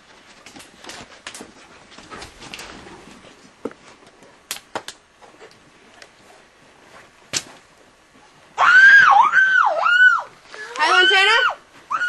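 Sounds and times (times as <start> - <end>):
girl screaming: 8.6 - 12.0.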